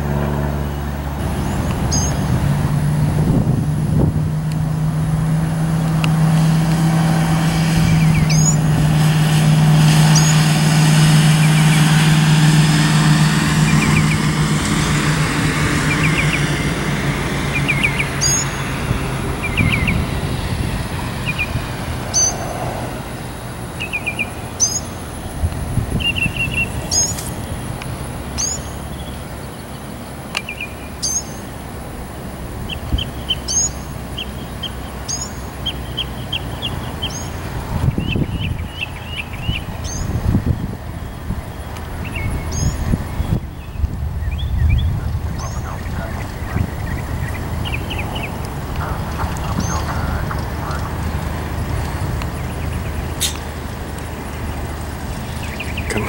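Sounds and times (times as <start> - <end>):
light aircraft engine and propeller: 0.0 - 56.0
small bird chirping: 1.4 - 2.3, 7.8 - 8.6, 17.6 - 18.6, 23.8 - 25.0, 25.9 - 27.2, 28.4 - 29.2, 30.4 - 31.4, 32.6 - 48.4.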